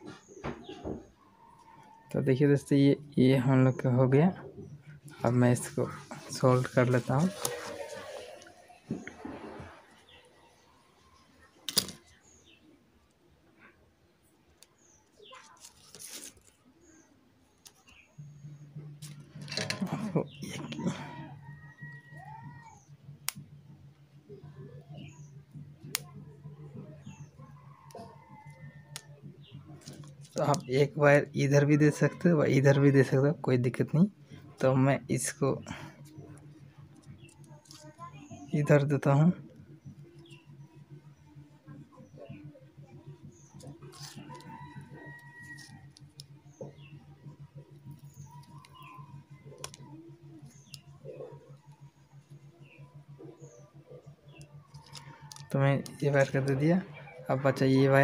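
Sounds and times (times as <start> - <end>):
low steady hum: 1.0 - 58.0
animal cry: 7.1 - 10.4, 19.6 - 22.9.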